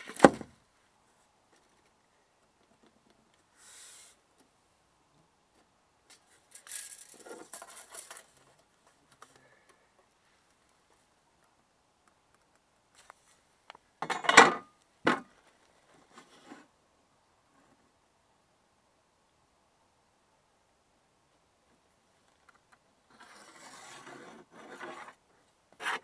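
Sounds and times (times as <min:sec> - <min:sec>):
metallic clatter: 0:06.5 - 0:08.4.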